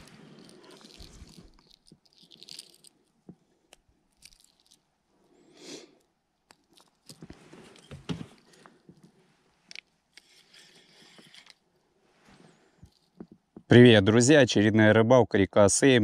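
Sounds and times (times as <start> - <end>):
small clicks and rustles: 0.0 - 4.9, 6.0 - 13.7
hands handling fishing line: 0.0 - 5.0, 5.6 - 13.7.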